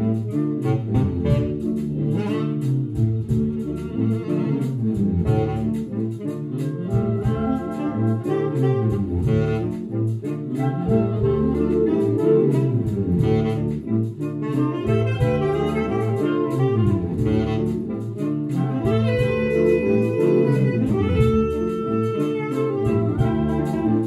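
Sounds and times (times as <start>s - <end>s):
saxophone orchestra playing: 0.0s - 24.0s.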